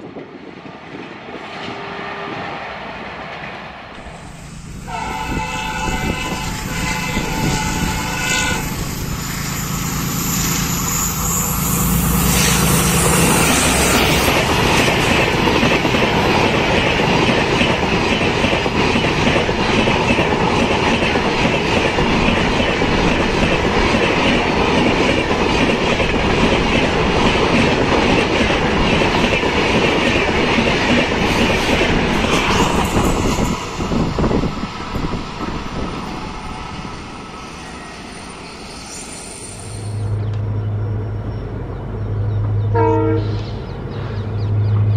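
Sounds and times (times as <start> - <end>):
train wheels clacking on rails: 3.2 - 40.4
locomotive horn: 4.7 - 8.9, 42.7 - 43.6.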